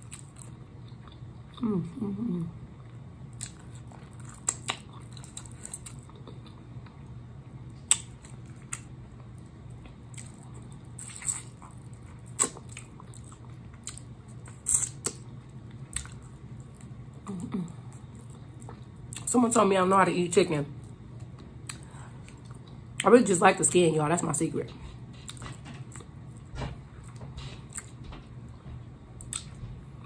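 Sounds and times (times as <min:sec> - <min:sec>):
chewing and lip smacking: 0:02.8 - 0:07.1, 0:07.8 - 0:19.3, 0:29.2 - 0:29.7.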